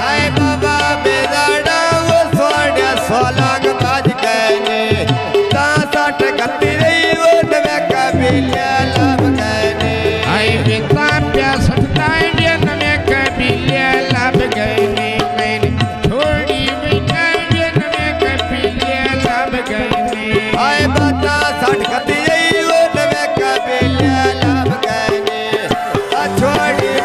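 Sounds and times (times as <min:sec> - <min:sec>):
tabla drumming: 0:00.0 - 0:27.0
folk melody with sliding notes: 0:20.2 - 0:27.0.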